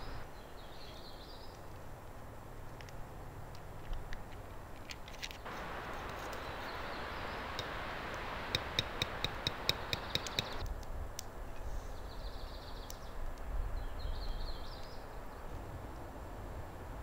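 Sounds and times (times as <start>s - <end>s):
steady hiss: 0.0s - 0.3s, 5.4s - 10.7s.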